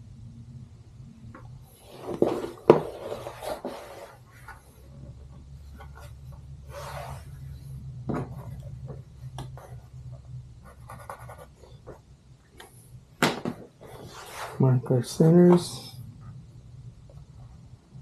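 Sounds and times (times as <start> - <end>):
steady low hum: 0.0 - 18.0
paper sheets rustling and sliding: 1.8 - 4.8, 13.6 - 14.7
pen scratching on paper: 10.6 - 11.8.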